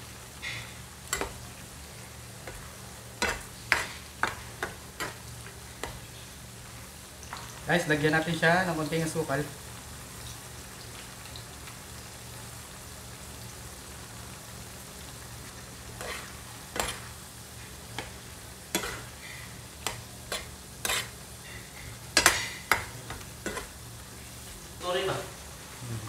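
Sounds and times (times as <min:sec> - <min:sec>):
food sizzling in a frying pan: 0:00.0 - 0:26.0
spatula scraping a pan: 0:00.4 - 0:01.4, 0:02.4 - 0:05.2, 0:15.9 - 0:23.8.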